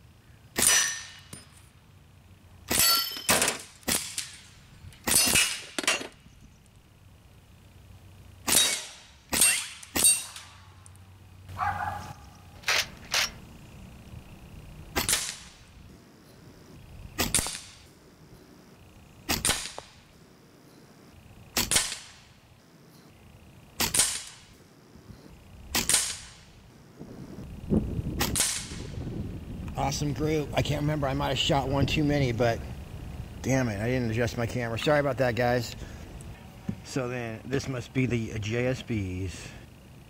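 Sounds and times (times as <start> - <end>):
air rifle shots cracking: 2.7 - 5.8, 14.9 - 15.6, 17.2 - 17.9, 19.3 - 20.0, 21.5 - 22.3, 23.8 - 24.6, 25.7 - 26.5, 28.2 - 28.9.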